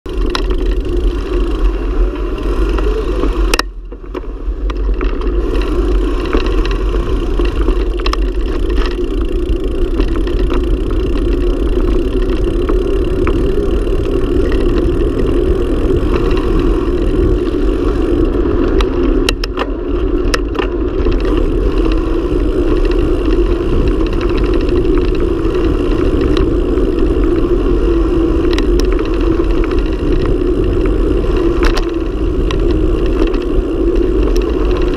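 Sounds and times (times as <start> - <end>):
bike clicks and rattles: 0.1 - 34.9
tyre and road rumble: 0.1 - 34.9
wind noise on microphone: 0.1 - 34.9.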